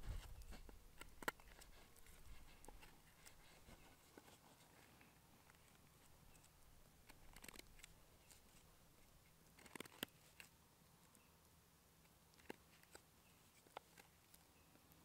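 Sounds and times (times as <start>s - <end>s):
knife shaving wood: 0.0s - 10.6s.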